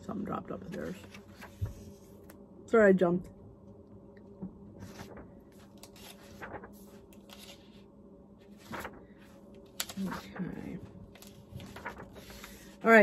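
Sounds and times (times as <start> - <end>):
book pages turning: 0.6 - 2.4, 4.8 - 13.0.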